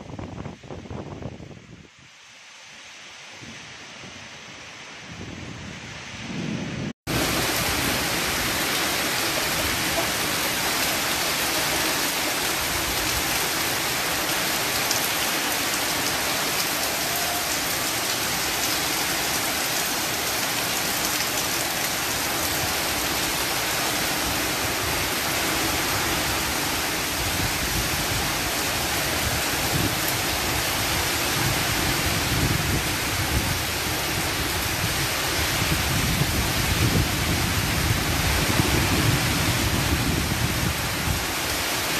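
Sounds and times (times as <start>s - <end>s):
heavy rain on leaves and paving: 0.0s - 5.8s, 6.4s - 41.9s
low rumbling gusts: 21.6s - 41.8s.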